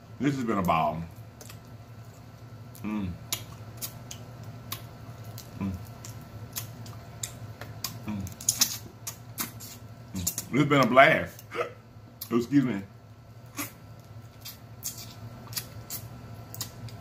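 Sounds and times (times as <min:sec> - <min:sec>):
crab shells cracking: 0:01.2 - 0:09.6.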